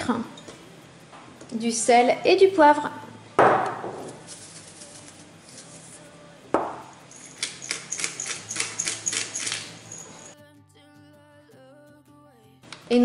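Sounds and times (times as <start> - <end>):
sharp knocks on steel bowl: 3.4 - 4.0, 6.6 - 6.9.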